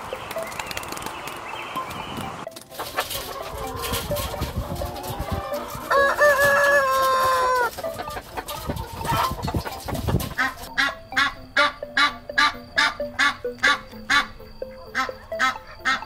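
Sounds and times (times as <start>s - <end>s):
chickens clucking: 0.0s - 16.0s
short evenly spaced calls: 0.0s - 16.0s
rooster crowing: 3.2s - 9.5s.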